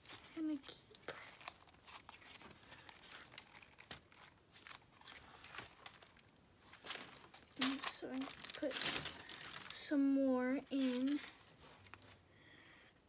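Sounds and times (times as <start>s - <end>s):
sticky slime crackles: 0.0s - 10.0s.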